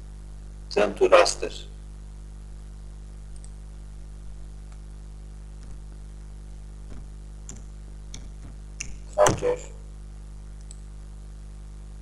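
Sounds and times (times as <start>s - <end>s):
low electrical hum: 0.0s - 12.0s
computer mouse clicks: 10.6s - 10.8s.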